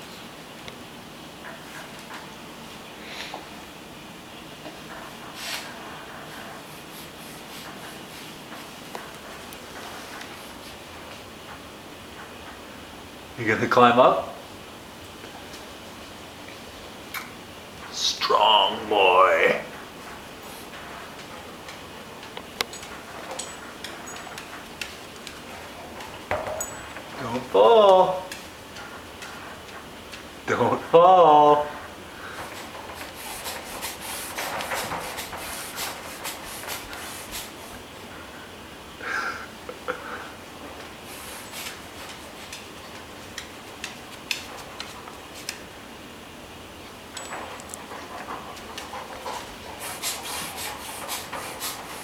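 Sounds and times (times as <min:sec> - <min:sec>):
faint steady hiss: 0:00.0 - 0:52.0
light metallic clicks and clinks: 0:47.1 - 0:47.8.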